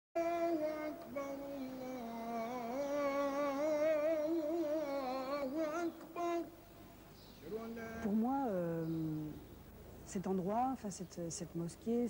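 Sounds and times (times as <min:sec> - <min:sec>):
person singing unaccompanied: 0:00.2 - 0:06.7, 0:07.4 - 0:09.4.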